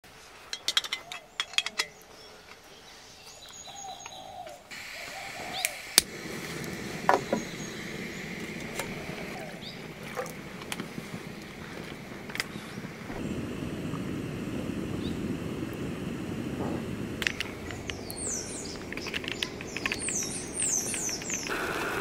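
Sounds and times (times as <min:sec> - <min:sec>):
gas stove flame rushing: 0:04.7 - 0:22.0
lighter and cup clicks and clinks: 0:17.2 - 0:21.5.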